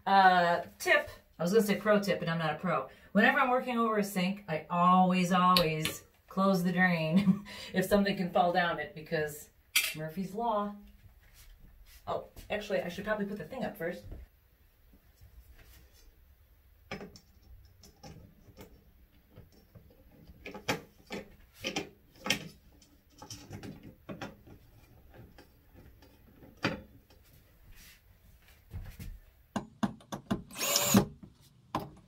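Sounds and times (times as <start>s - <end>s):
cordless drill driving a screw: 30.4s - 31.2s.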